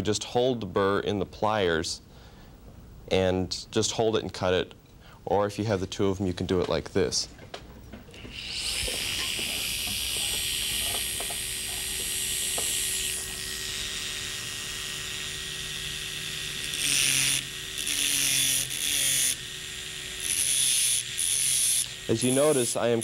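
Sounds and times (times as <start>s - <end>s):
dental handpieces whining: 8.1s - 23.0s
disc grinding metal: 8.4s - 23.0s.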